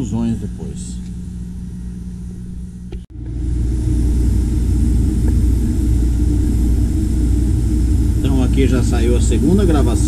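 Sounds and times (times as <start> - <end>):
laser engraver machine hum: 0.0 - 10.0.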